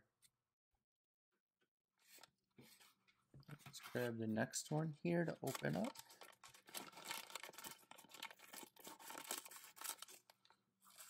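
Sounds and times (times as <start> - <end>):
plastic foil crinkling: 5.3 - 11.0.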